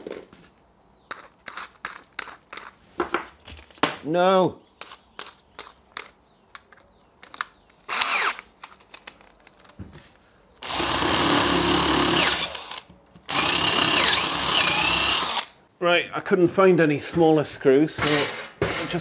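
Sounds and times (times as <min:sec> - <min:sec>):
cordless drill whirring into wood: 0:07.9 - 0:08.4, 0:10.6 - 0:15.6.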